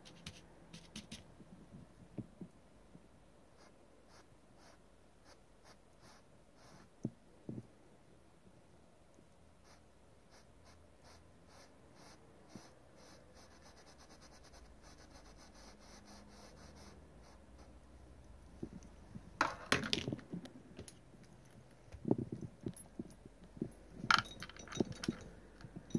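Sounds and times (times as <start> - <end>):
paintbrush strokes on canvas: 9.6 - 17.8
knocks and rustles of handling: 18.4 - 25.9.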